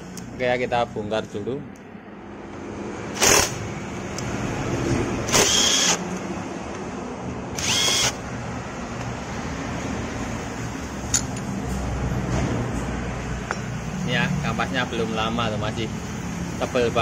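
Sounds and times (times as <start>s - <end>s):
power driver whining: 5.2s - 6.1s, 7.5s - 8.2s.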